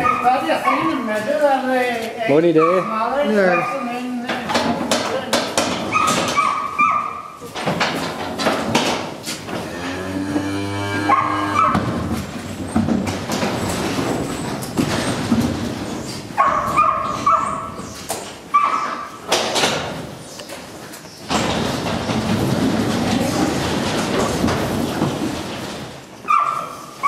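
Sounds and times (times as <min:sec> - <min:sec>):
knocks and clatters on metal ramp: 0:04.3 - 0:06.7, 0:07.4 - 0:09.8, 0:11.2 - 0:18.3, 0:19.3 - 0:20.1, 0:21.2 - 0:26.4
cow mooing: 0:09.6 - 0:11.9.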